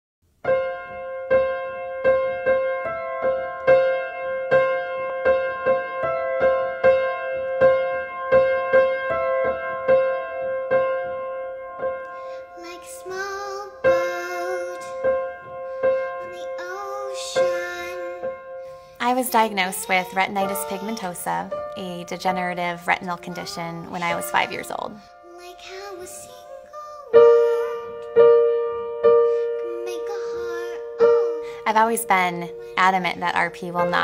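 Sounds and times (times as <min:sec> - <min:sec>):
upright piano playing chords: 0:00.3 - 0:34.0
girl singing: 0:12.1 - 0:21.5, 0:22.9 - 0:28.2, 0:29.3 - 0:31.9.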